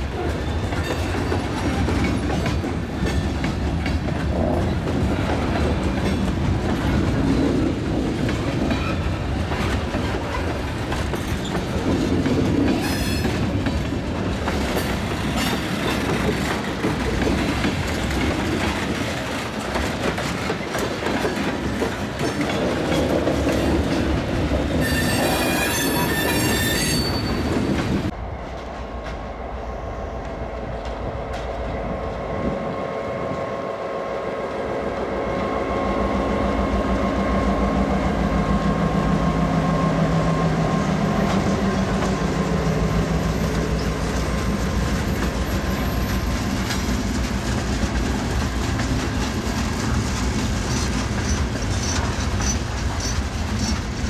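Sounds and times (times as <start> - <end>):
train wheels clattering on rails: 0.0 - 32.7, 36.9 - 54.0
diesel locomotive engine hum: 0.0 - 54.0
wheel squeal: 24.8 - 27.7, 50.7 - 53.9.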